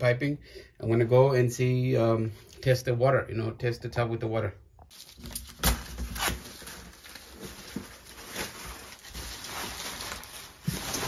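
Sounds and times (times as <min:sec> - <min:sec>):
plastic sheeting rustling: 0:06.1 - 0:11.0.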